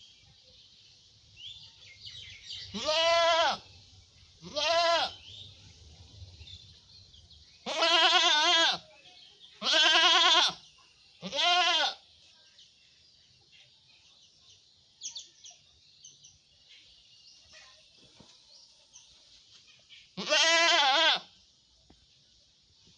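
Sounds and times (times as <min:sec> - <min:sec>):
goat bleating: 0:02.7 - 0:03.6, 0:04.4 - 0:05.2, 0:07.6 - 0:08.8, 0:09.6 - 0:10.6, 0:11.2 - 0:12.0, 0:20.2 - 0:21.3.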